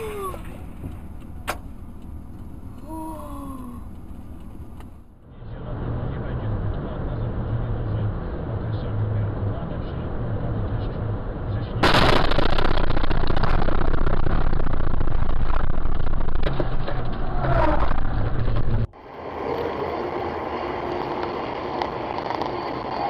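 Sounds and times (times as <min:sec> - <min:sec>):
car road and wind noise: 0:00.0 - 0:23.0
low engine hum: 0:00.0 - 0:23.0
traffic hum: 0:00.0 - 0:23.0.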